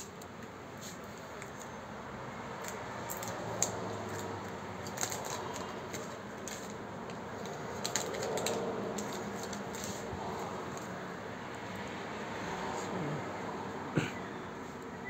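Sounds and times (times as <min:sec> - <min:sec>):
steady background noise: 0:00.0 - 0:15.0
plastic sleeve crinkling: 0:02.6 - 0:10.1.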